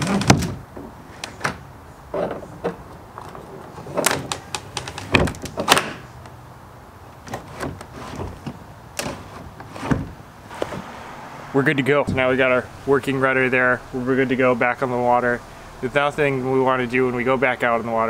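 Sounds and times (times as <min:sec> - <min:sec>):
hard plastic clunks and knocks: 0:00.0 - 0:06.0, 0:07.3 - 0:10.9
plastic scraping: 0:00.0 - 0:06.1, 0:07.2 - 0:11.0.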